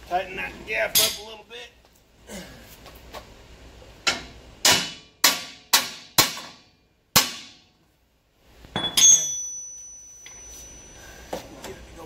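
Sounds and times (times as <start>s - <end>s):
hammer striking steel: 4.0s - 7.7s, 8.8s - 10.9s
clanking metal hit ringing: 8.8s - 11.0s.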